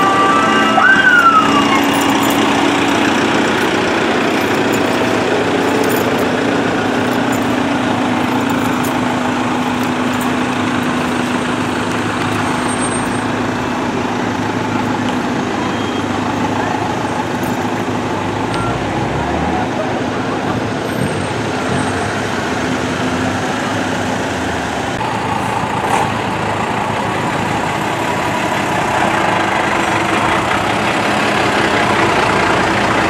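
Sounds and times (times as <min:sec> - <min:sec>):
siren winding down: 0:00.0 - 0:04.0
diesel engine drone: 0:00.0 - 0:33.0
road noise: 0:00.0 - 0:33.0.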